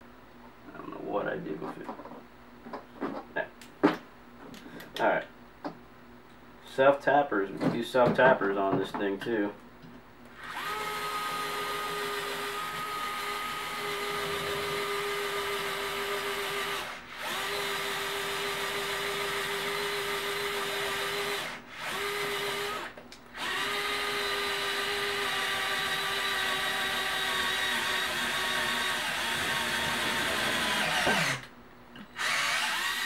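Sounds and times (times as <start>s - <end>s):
electric screwdriver motor: 10.4s - 13.0s, 13.8s - 31.5s, 32.2s - 33.0s.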